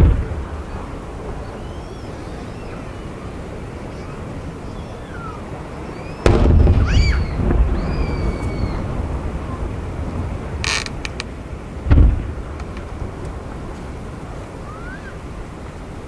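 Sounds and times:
fireworks booming: 0.0s - 15.1s
faint high whistles: 1.4s - 8.8s, 14.6s - 15.2s
low rumble: 6.3s - 15.6s.

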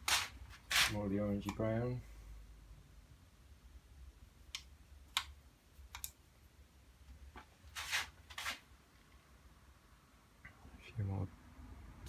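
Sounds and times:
scratchy brush strokes: 0.0s - 1.1s, 7.7s - 8.7s.

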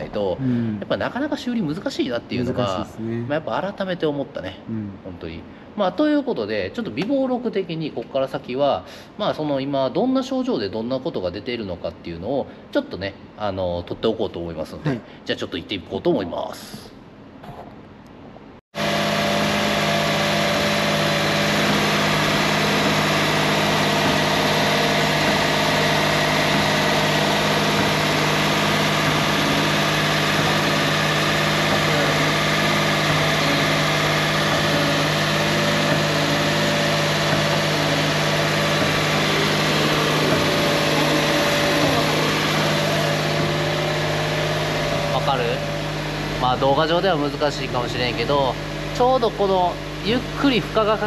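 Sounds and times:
car engine running: 18.8s - 51.0s
mechanical drone of wheel hub: 18.8s - 51.0s.

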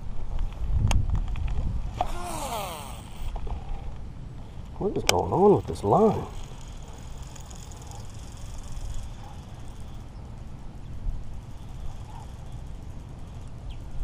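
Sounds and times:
wind on microphone: 0.0s - 3.9s
faint high hiss: 1.9s - 14.0s.

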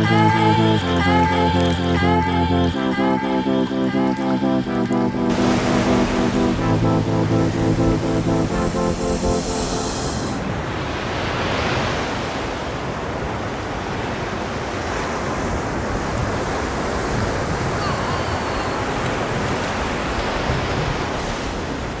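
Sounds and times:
small waves breaking on sand: 10.4s - 22.0s.

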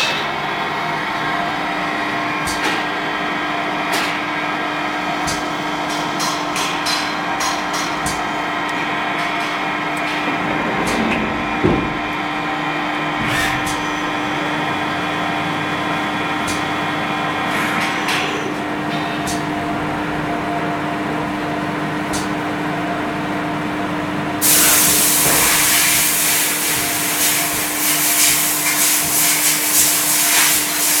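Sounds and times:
lathe machine hum and whine: 0.0s - 31.0s
sharp knocks and clicks: 5.2s - 12.2s
loud spraying hiss: 24.4s - 31.0s.

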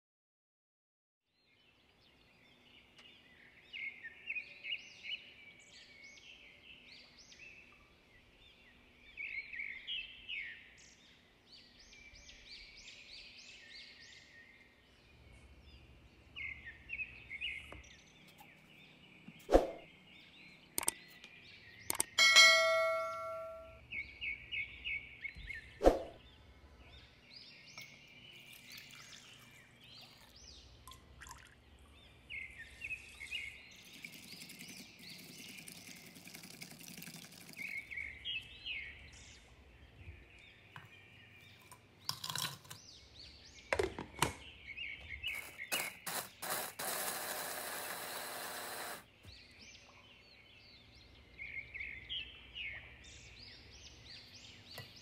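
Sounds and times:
birds chirping: 1.4s - 55.0s
electric chopper grinding: 45.4s - 49.0s.

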